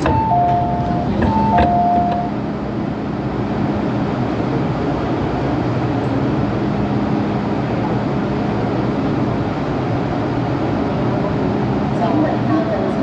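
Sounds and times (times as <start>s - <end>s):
low motor hum: 0.0s - 11.4s
train running noise: 0.0s - 13.0s.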